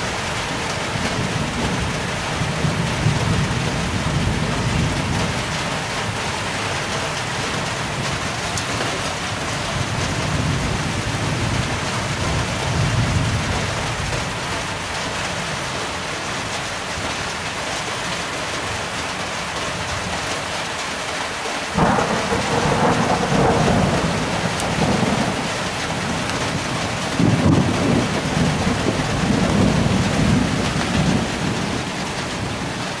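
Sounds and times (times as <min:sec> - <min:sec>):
thunder rumbling: 0:00.0 - 0:14.8, 0:21.8 - 0:33.0
steady rain: 0:00.0 - 0:33.0.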